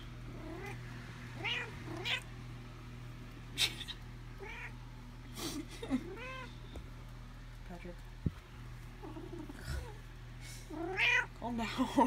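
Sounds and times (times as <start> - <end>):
cat meowing: 1.4 - 2.3, 4.4 - 4.8, 6.0 - 6.6, 10.7 - 11.3.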